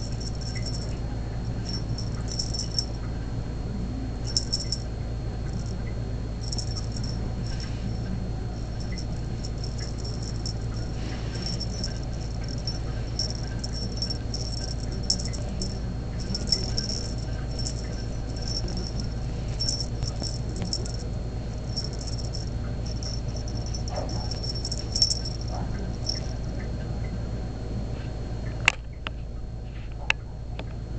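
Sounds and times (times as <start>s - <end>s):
cat toy rattling and jingling: 0.0s - 3.0s, 4.3s - 4.8s, 5.5s - 5.8s, 6.4s - 26.6s
steady low hum: 0.0s - 30.9s.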